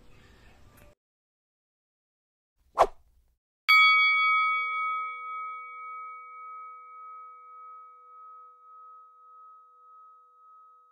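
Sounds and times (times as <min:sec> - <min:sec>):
bell-like chime ringing: 0:03.7 - 0:10.9.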